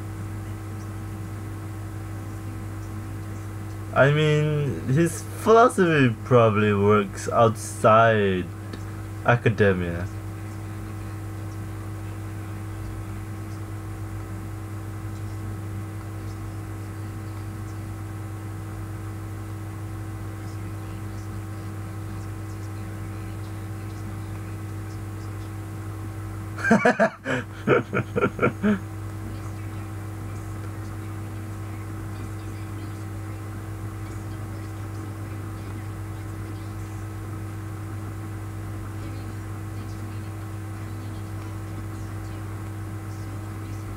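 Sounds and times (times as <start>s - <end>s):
electrical mains hum: 0.0s - 43.9s
man laughing: 26.6s - 28.8s.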